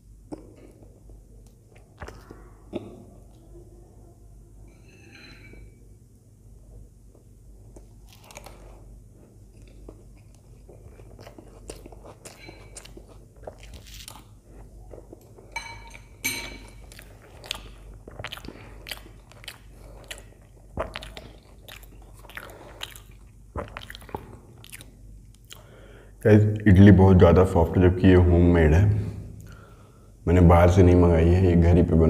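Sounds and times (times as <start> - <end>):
metal spoon clinking in bowl: 4.7 - 5.8, 15.5 - 16.8
wet chewing mouth clicks: 9.6 - 15.4, 16.8 - 25.7.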